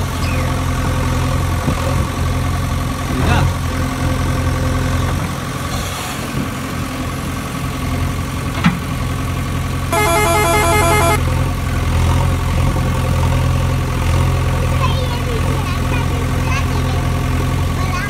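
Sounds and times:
toy electronic engine hum: 0:09.9 - 0:11.2
choppy electronic beeping: 0:10.0 - 0:11.2.

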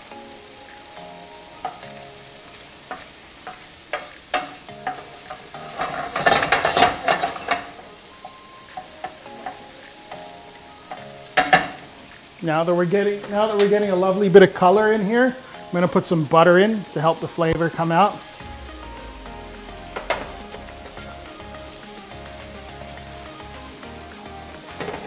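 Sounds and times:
food sizzling in frying pan: 0:00.0 - 0:25.0
utensil stirring and knocking pan: 0:01.6 - 0:10.3, 0:10.9 - 0:12.0.

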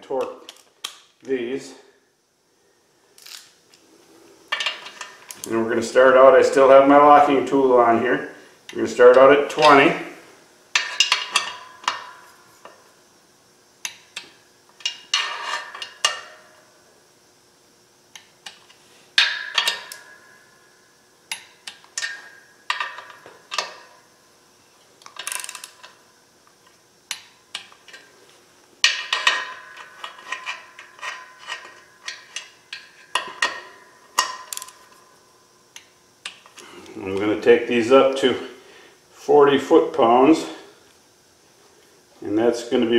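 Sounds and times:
torque wrench ratcheting clicks: 0:34.5 - 0:34.8.

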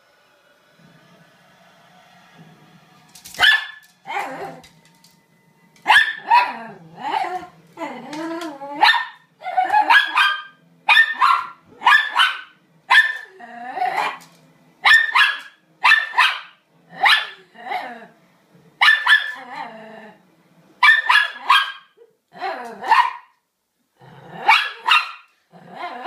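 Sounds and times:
dog barking: 0:03.4 - 0:03.8, 0:05.9 - 0:06.5, 0:08.8 - 0:13.3, 0:14.8 - 0:17.4, 0:18.8 - 0:19.4, 0:20.8 - 0:22.0, 0:22.8 - 0:23.3, 0:24.5 - 0:25.3.

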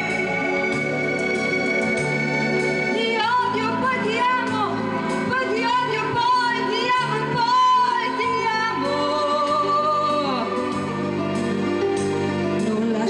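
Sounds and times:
backing track music: 0:00.0 - 0:13.0
woman singing pop ballad: 0:02.9 - 0:10.8, 0:12.6 - 0:13.0.

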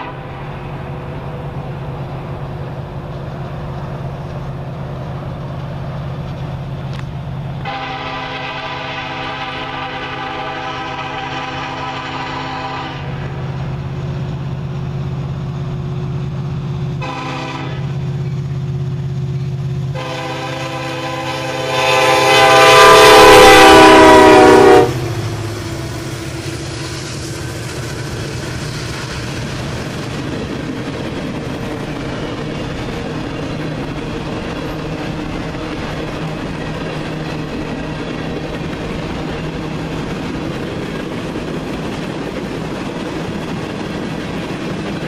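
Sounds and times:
locomotive horn blasts: 0:00.0 - 0:00.4, 0:07.6 - 0:13.2, 0:17.0 - 0:18.0, 0:19.9 - 0:25.1
diesel engines droning: 0:00.0 - 0:44.8
freight cars rumbling and clattering: 0:25.0 - 0:45.0.

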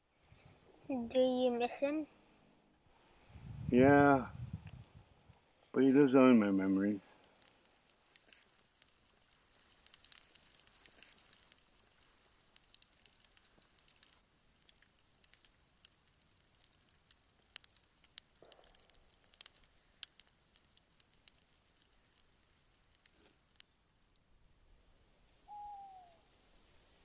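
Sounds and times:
faint hiss: 0:02.9 - 0:27.0
campfire crackling and popping: 0:06.9 - 0:27.0.

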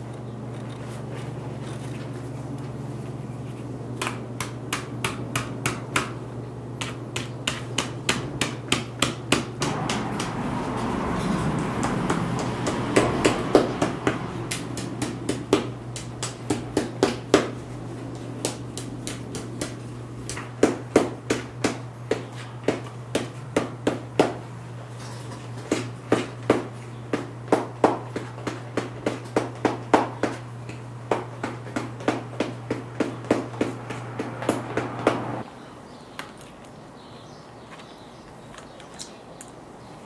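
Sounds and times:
hammer tapping: 0:06.8 - 0:10.8, 0:11.5 - 0:24.4.

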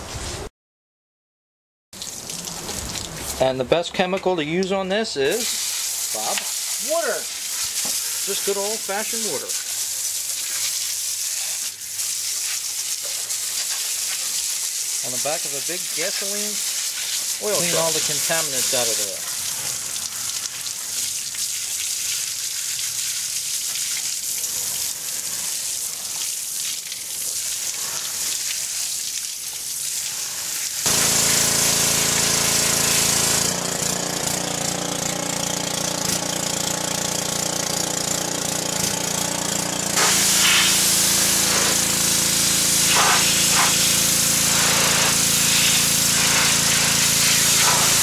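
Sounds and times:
pressure washer jet spraying: 0:05.3 - 0:29.0, 0:30.0 - 0:48.0
pressure washer motor drone: 0:06.1 - 0:09.7, 0:17.3 - 0:20.0, 0:30.8 - 0:48.0.

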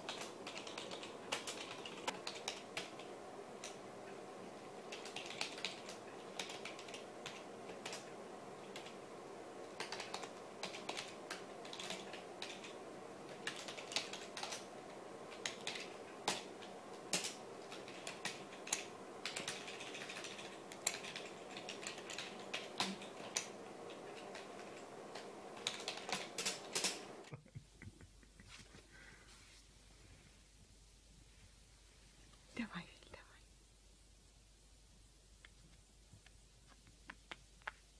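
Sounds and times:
computer keyboard typing: 0:00.0 - 0:03.8, 0:04.8 - 0:09.0, 0:09.7 - 0:27.2.

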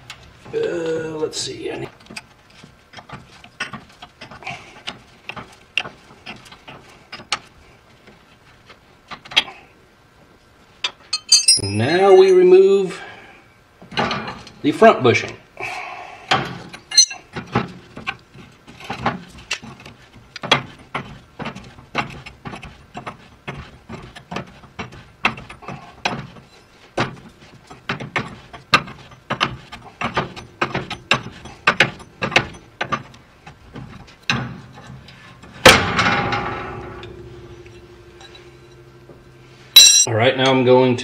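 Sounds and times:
loud metal clank: 0:35.6 - 0:40.1.

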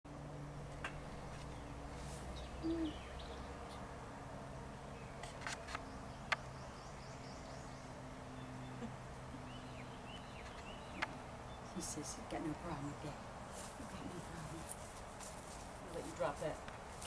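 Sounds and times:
faint bird chirps: 0:02.3 - 0:03.8.

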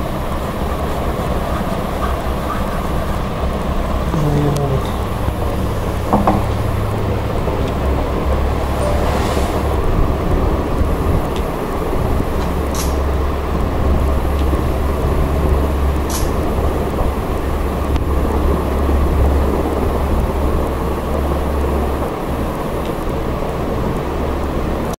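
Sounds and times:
low rumbling noise: 0:00.0 - 0:25.0.

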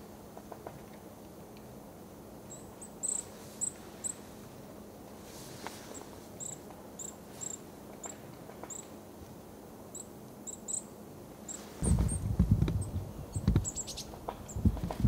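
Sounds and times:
small birds calling: 0:02.4 - 0:04.3, 0:05.8 - 0:09.0, 0:09.9 - 0:14.9.

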